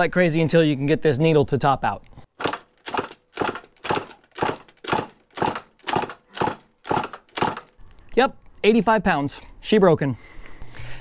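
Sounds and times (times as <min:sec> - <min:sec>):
dirt bike engine cranking: 0:02.3 - 0:07.8.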